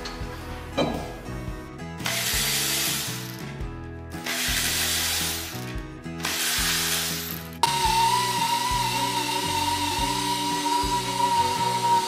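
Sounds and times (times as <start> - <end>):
background music: 0.0 - 12.0
electric ratchet running: 2.0 - 3.4, 4.2 - 12.0.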